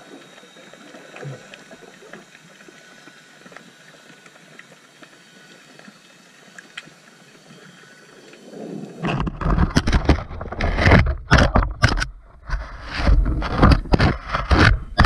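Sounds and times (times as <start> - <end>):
faint underwater clicks: 0.0 - 12.6
water rushing against camera: 8.2 - 15.0.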